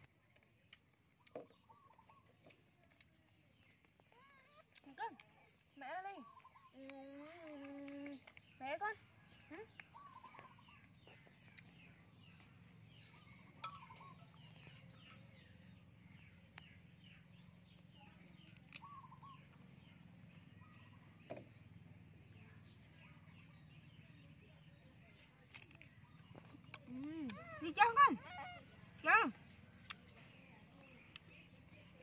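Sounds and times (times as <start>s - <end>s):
small birds chirping: 0.0s - 32.0s
high bird trills: 13.1s - 14.4s, 18.8s - 19.5s.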